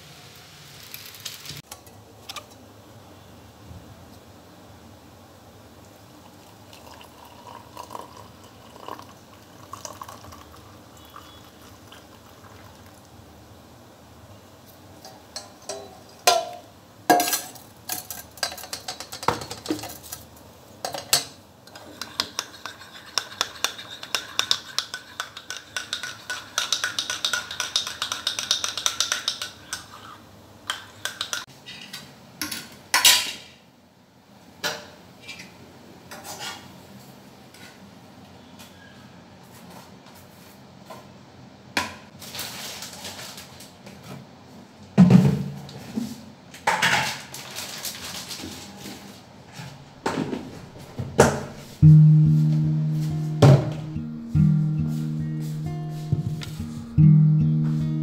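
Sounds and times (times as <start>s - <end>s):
metal spoon clinking ceramic mug: 20.9s - 30.0s, 30.7s - 31.4s.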